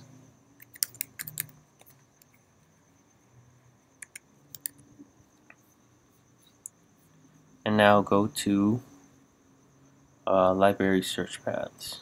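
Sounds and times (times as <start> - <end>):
keyboard keystrokes: 0.6 - 2.0
faint high-pitched tone: 2.2 - 12.0.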